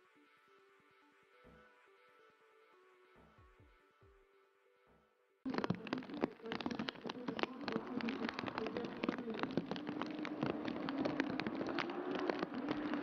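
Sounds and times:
dense irregular crackling: 5.5s - 13.0s.

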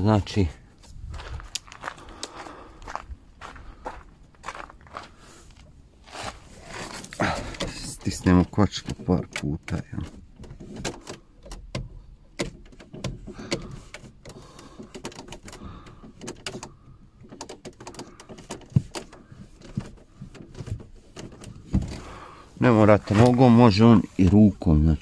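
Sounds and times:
brake pedal clicks and knocks: 5.5s - 25.0s.

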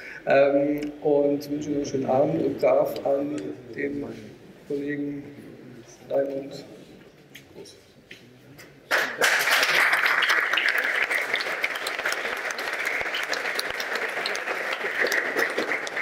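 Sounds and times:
audience applause: 8.9s - 16.0s.

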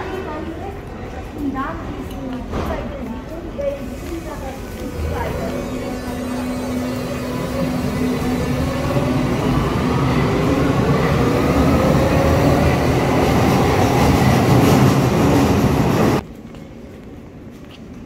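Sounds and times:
train wheels rumbling: 0.0s - 16.3s
train motor whine rising: 4.4s - 10.8s.

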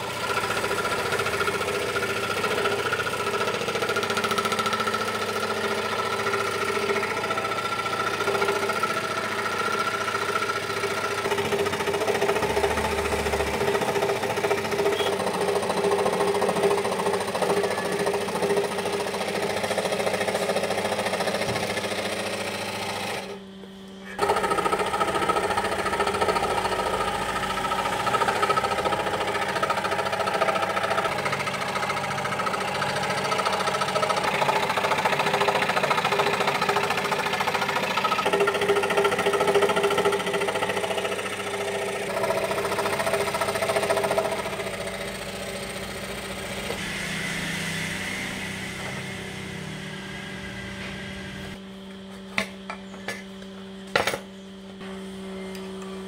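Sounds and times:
scroll saw cutting wood: 0.0s - 51.6s
low hum: 44.2s - 51.8s.

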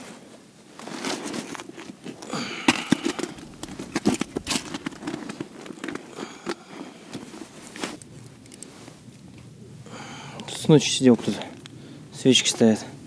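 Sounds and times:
plastic bag crackling: 2.6s - 8.8s
sharp clicks and knocks: 2.7s - 6.1s.

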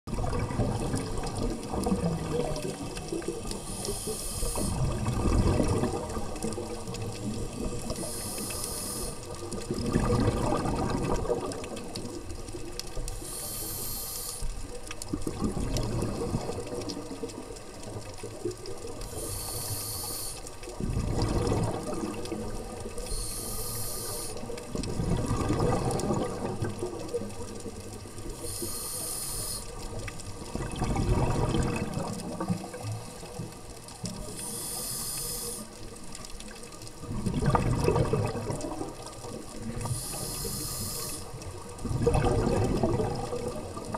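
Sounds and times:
exhaled bubbles burbling: 0.1s - 13.8s, 14.6s - 19.8s, 20.6s - 23.5s, 24.2s - 28.8s, 29.4s - 34.7s, 35.5s - 43.9s
regulator inhale hiss: 3.5s - 4.9s, 7.4s - 9.4s, 13.1s - 14.6s, 19.0s - 20.7s, 23.0s - 24.6s, 28.2s - 30.0s, 34.2s - 35.9s, 39.8s - 41.5s.

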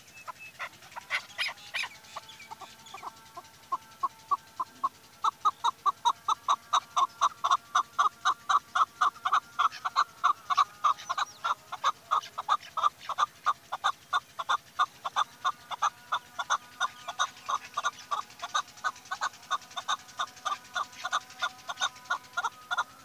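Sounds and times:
partridge chuk calls: 0.0s - 23.0s.

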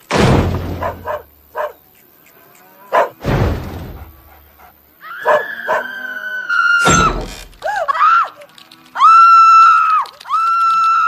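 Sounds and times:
dog whining: 5.2s - 6.2s
cartoon dog yapping: 5.2s - 6.9s.

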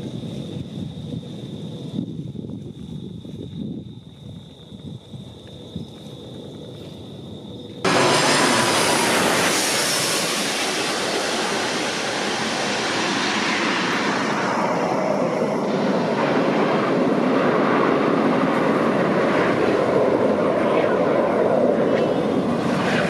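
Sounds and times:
high engine whine: 7.8s - 23.0s
jet engines roaring: 7.8s - 23.0s.

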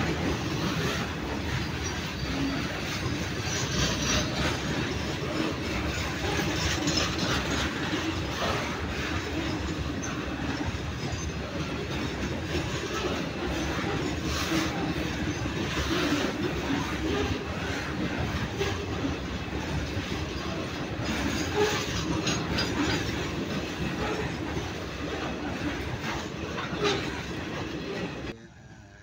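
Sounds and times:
train wheels rumbling on rail: 0.0s - 28.4s
wheels clacking over rail joints: 0.0s - 28.4s.

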